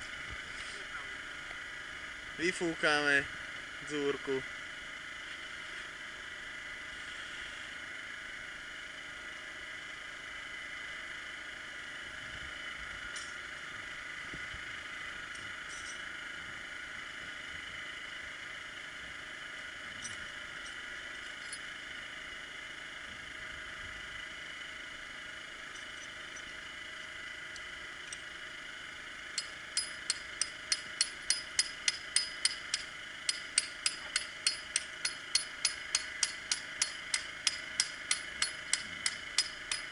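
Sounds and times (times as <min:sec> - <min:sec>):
hammer striking metal on rock: 0:29.4 - 0:39.9.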